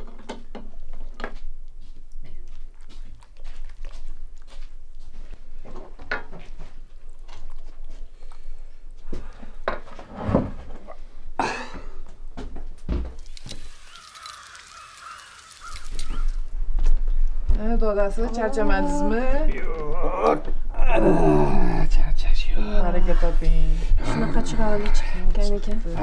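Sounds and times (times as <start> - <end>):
harsh bird calls: 13.8 - 16.5.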